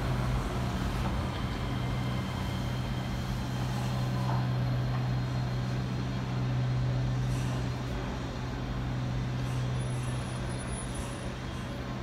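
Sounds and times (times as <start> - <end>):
monorail train humming: 0.0 - 12.0.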